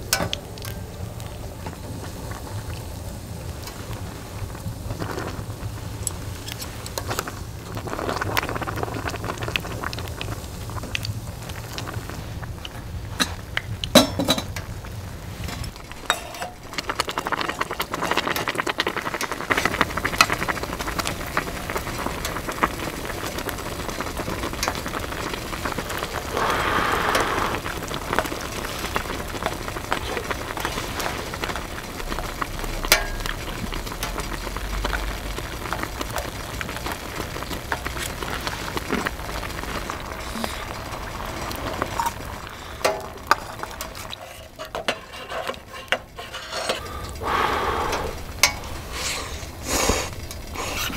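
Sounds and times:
food sizzling in a pan: 0.0 - 46.6
clicks and scrapes of stirring: 41.5 - 47.2.

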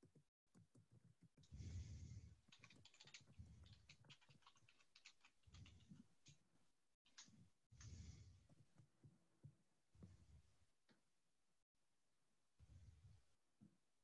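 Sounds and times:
faint typing on a keyboard: 0.0 - 9.6.

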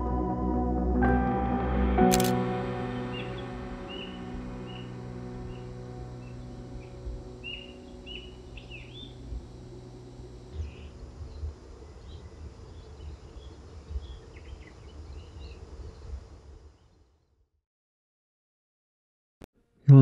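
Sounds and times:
low outdoor rumble: 2.6 - 16.7
small birds chirping: 3.0 - 9.6, 10.4 - 17.3.

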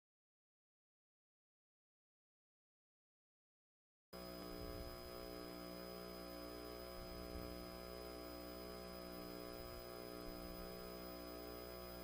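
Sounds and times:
electrical mains hum: 4.2 - 12.0
thin high whine: 4.2 - 12.0.

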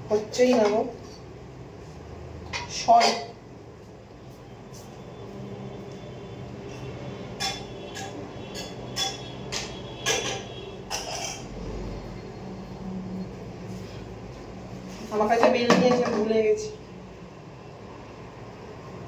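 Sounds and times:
kitchen utensils clinking: 6.7 - 11.6.

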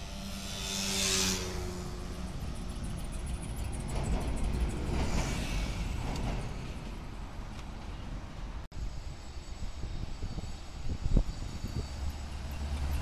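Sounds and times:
road traffic rumble: 0.0 - 8.7.

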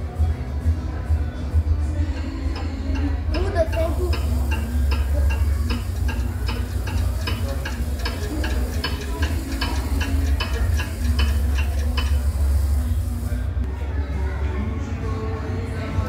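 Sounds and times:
steady low hum: 1.3 - 13.7
wall clock ticking quickly: 3.0 - 13.1.

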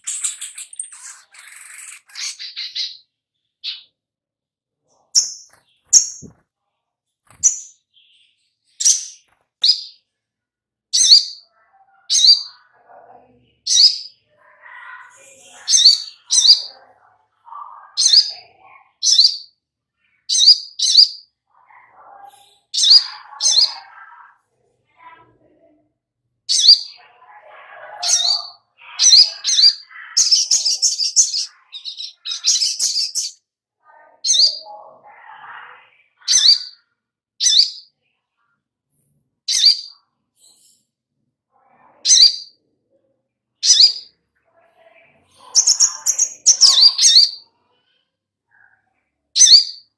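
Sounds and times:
bird chirping: 0.0 - 4.0, 4.9 - 6.4, 7.3 - 10.0, 10.9 - 24.1, 26.5 - 27.3, 27.9 - 35.0, 35.8 - 38.5, 39.5 - 40.8, 42.1 - 42.6, 43.6 - 47.6, 49.4 - 49.9.

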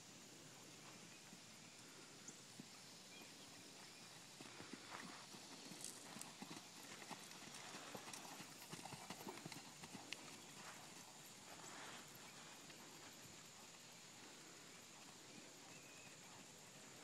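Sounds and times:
horse hoofbeats on sand: 3.7 - 13.8.

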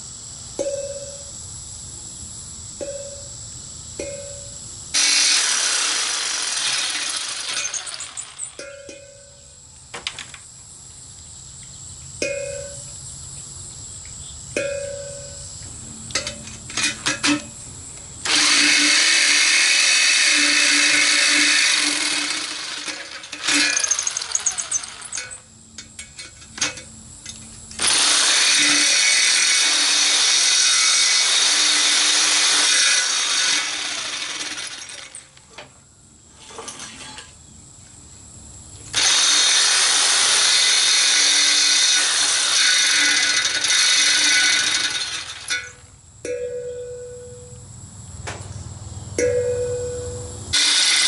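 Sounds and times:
jigsaw cutting steel: 5.0 - 8.6, 18.2 - 25.4, 27.8 - 35.3, 38.9 - 45.8, 50.6 - 51.0.

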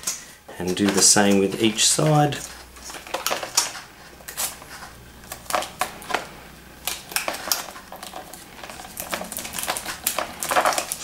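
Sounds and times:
plastic and cardboard crackling: 0.0 - 11.0.

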